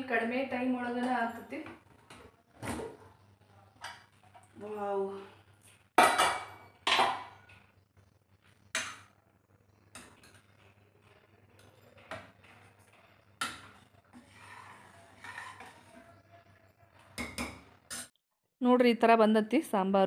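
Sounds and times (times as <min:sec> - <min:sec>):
ladle scraping pot: 0:11.5 - 0:16.2.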